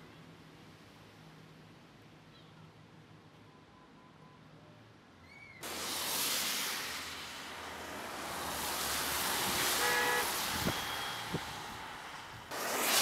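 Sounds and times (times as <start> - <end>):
tyres hissing on wet road: 5.6 - 13.0
car horn toot: 9.7 - 11.2.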